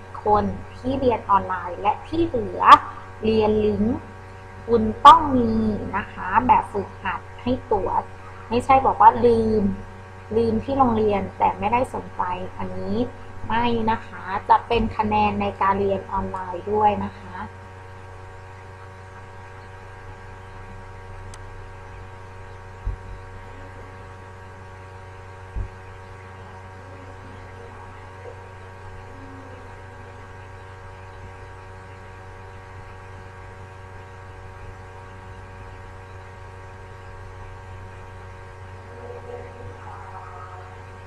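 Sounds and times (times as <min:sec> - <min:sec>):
electrical hum: 0:00.0 - 0:41.0
dull low thumps: 0:22.7 - 0:23.4, 0:25.5 - 0:25.9.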